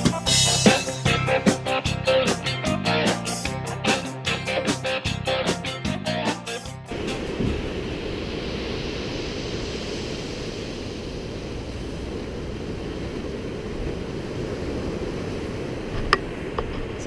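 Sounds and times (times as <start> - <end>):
surf rushing: 0.0 - 17.0
wind buffeting microphone: 6.9 - 17.0.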